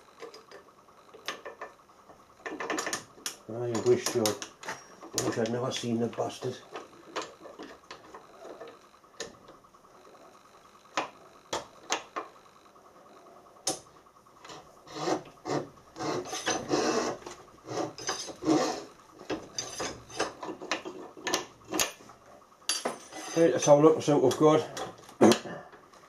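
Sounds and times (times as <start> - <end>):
broach rasping scrapes: 14.4 - 21.2, 23.0 - 23.9.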